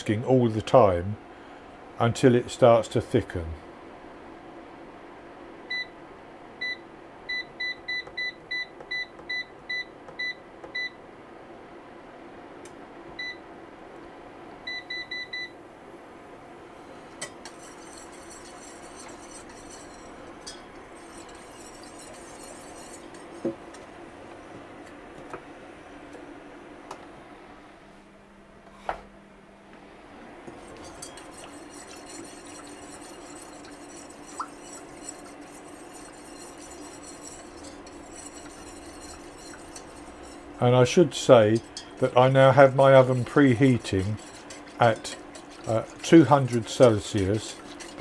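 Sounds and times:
cooker touch controls beeping: 0:06.6 - 0:11.0, 0:13.2 - 0:13.4, 0:14.7 - 0:15.6.

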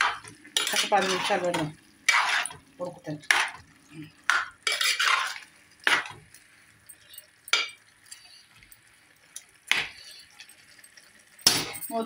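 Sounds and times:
spoon scraping a metal pot: 0:00.0 - 0:02.6, 0:04.6 - 0:06.1.

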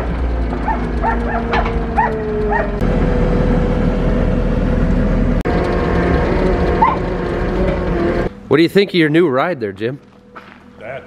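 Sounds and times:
engine drone: 0:00.0 - 0:11.0
dog yipping: 0:00.6 - 0:02.8, 0:06.8 - 0:07.0.

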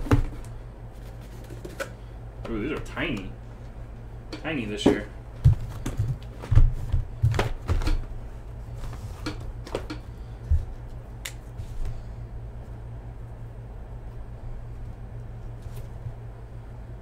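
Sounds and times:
cardboard boxes knocking together: 0:00.0 - 0:00.5.

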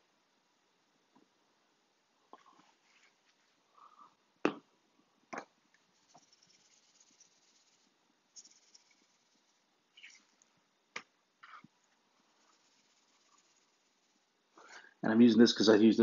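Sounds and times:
seasoning sprinkling: 0:05.8 - 0:10.5, 0:12.2 - 0:14.7.

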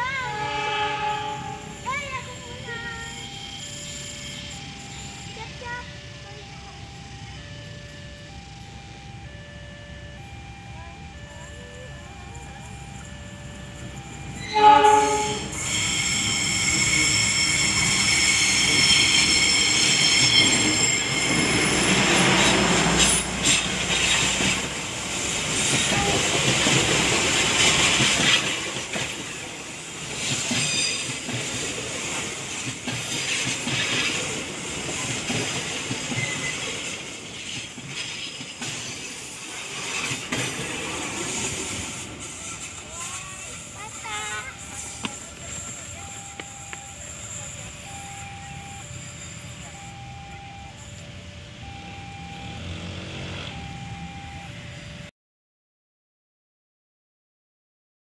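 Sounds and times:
locomotive horn blast: 0:00.0 - 0:01.8, 0:14.0 - 0:16.4, 0:21.0 - 0:27.3
train wheel squeal: 0:00.0 - 0:55.0
train passing rumble: 0:00.0 - 0:55.1
wheels clickety-clack over rails: 0:11.5 - 0:51.0.

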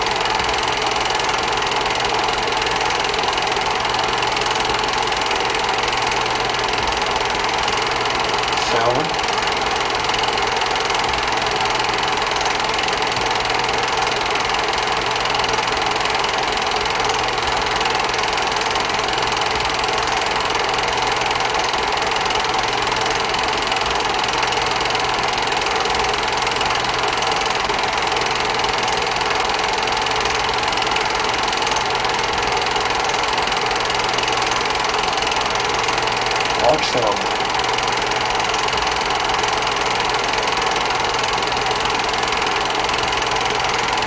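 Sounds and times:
film projector whirring and clatter: 0:00.0 - 0:44.0
electrical hum: 0:08.0 - 0:09.9, 0:36.4 - 0:37.8.

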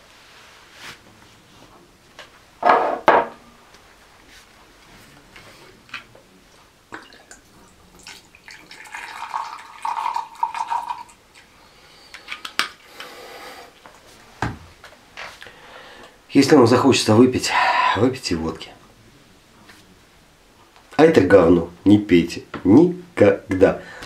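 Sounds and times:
glass knocking on table: 0:02.6 - 0:03.4
liquid pouring into glass: 0:06.9 - 0:11.5.

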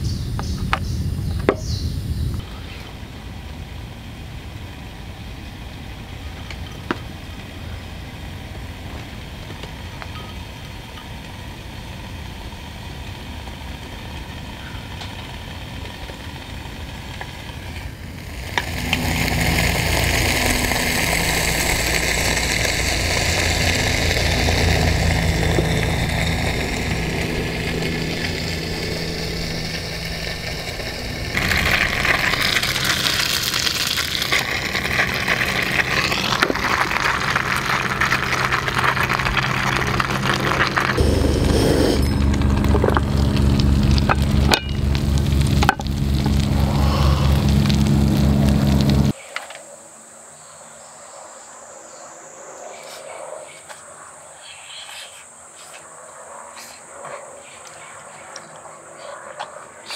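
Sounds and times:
low steady hum: 0:00.9 - 0:49.2
gas stove burner hissing: 0:07.0 - 0:49.1
food sizzling: 0:12.3 - 0:49.2
low rumbling: 0:16.5 - 0:49.2.

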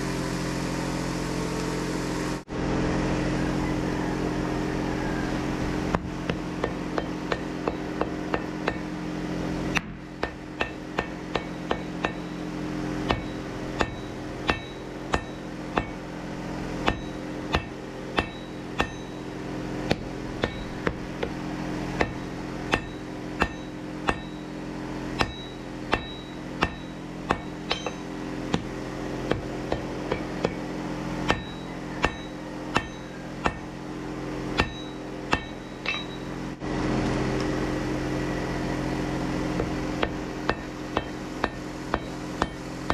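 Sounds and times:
steady low hum: 0:00.0 - 0:42.9
hammer blows on anvil: 0:09.7 - 0:12.4, 0:13.0 - 0:16.0, 0:16.8 - 0:19.2, 0:19.9 - 0:21.4, 0:22.0 - 0:24.5, 0:25.1 - 0:30.6, 0:31.2 - 0:33.8, 0:34.6 - 0:36.4.

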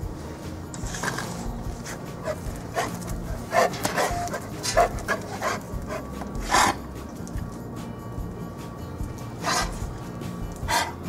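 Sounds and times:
dogs barking: 0:01.0 - 0:07.0, 0:09.3 - 0:11.0.

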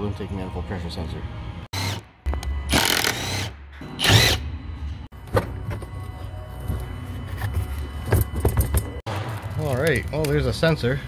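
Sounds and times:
cordless driver whirring: 0:02.7 - 0:04.4.

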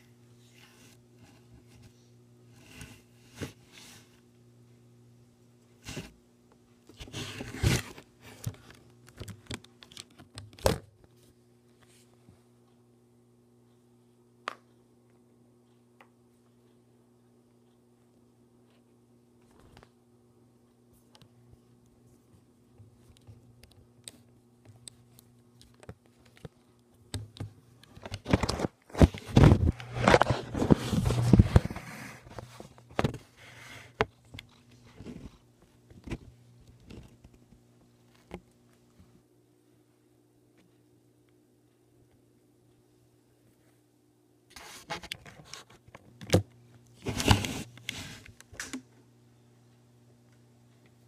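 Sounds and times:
low steady hum: 0:00.0 - 0:51.0
phone handling rubbing and rustling: 0:25.0 - 0:37.4, 0:44.5 - 0:48.4
handling noise on microphone: 0:28.0 - 0:33.9, 0:47.0 - 0:48.3.

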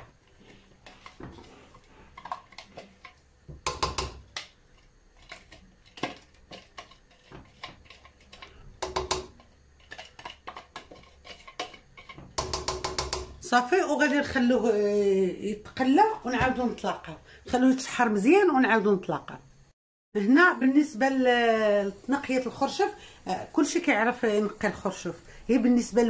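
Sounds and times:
spoon tapping and scraping: 0:00.0 - 0:13.4.

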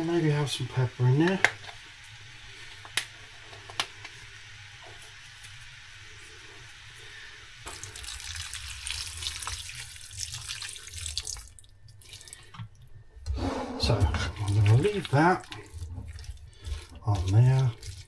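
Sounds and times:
meat frying sizzle: 0:00.0 - 0:13.0, 0:14.2 - 0:18.0
liquid pouring into pan: 0:07.6 - 0:12.8, 0:14.1 - 0:18.0.

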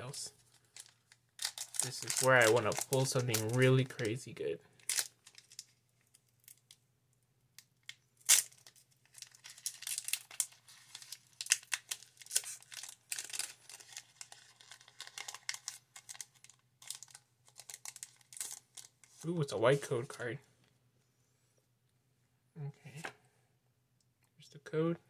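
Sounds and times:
foil wrapper crinkling: 0:00.4 - 0:04.1, 0:04.8 - 0:06.7, 0:07.8 - 0:19.2
foil wrapper tearing: 0:00.7 - 0:04.0, 0:04.8 - 0:05.8, 0:08.2 - 0:19.0.

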